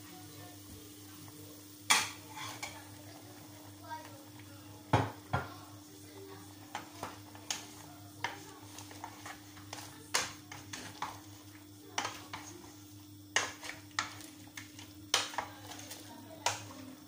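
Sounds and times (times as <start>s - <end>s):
wooden spoon knocking on pot: 4.9s - 5.6s.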